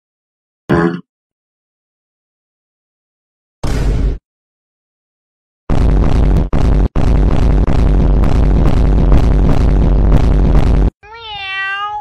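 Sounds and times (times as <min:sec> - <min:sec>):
electronic dance music: 0:06.2 - 0:10.9
cat meowing: 0:11.0 - 0:12.0.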